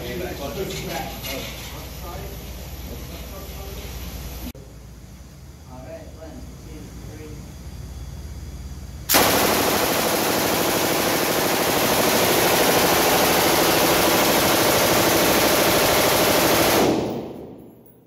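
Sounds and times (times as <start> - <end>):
machine gun firing automatic burst: 9.1 - 17.6.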